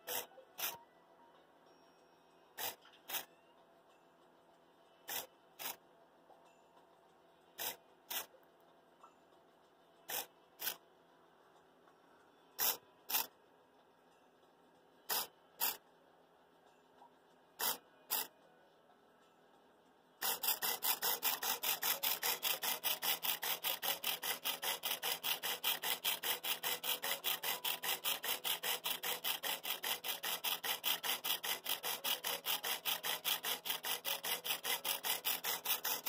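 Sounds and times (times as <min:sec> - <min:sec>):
servo motor jerking: 0:05.1 - 0:05.8, 0:07.6 - 0:08.3, 0:12.6 - 0:13.3, 0:17.6 - 0:18.3, 0:20.2 - 0:36.0.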